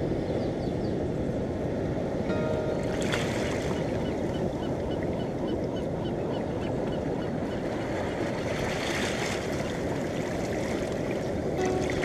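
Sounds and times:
surf washing over rocks: 2.3 - 4.0, 7.9 - 12.0.

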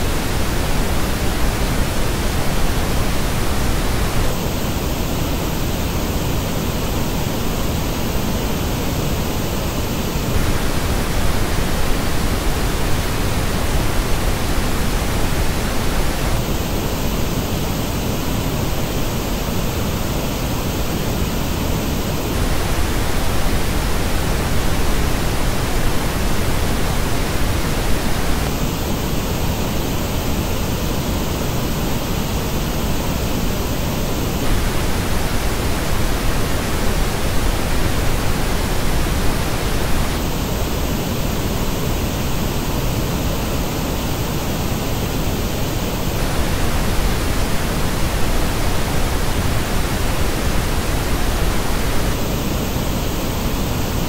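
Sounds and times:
pink noise hiss: 0.0 - 54.0.

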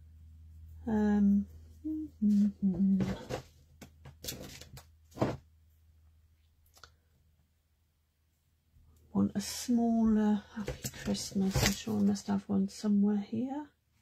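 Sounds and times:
woman humming and murmuring: 0.8 - 3.3.

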